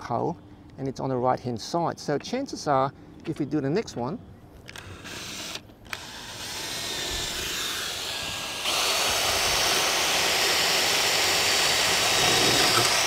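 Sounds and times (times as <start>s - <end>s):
cordless drill boring into mortar: 4.7s - 13.0s.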